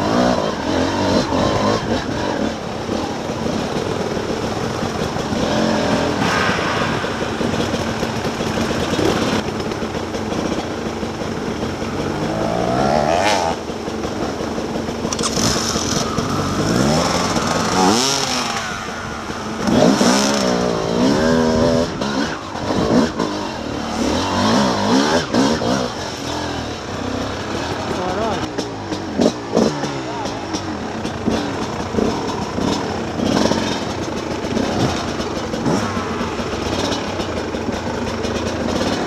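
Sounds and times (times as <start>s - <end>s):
dirt bike engine revving: 0.0s - 39.0s.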